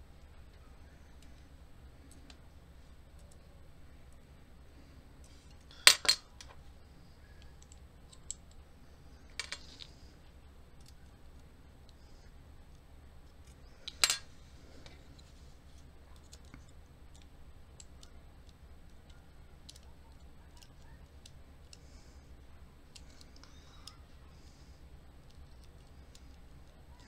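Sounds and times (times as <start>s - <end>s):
small metal clicks and ticks: 16.1s - 21.9s.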